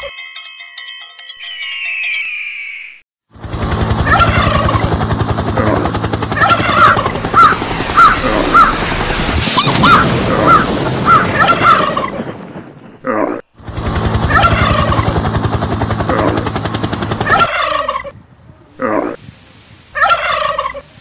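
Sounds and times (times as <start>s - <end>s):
rough pulsing animal rumble: 13.6s - 19.2s.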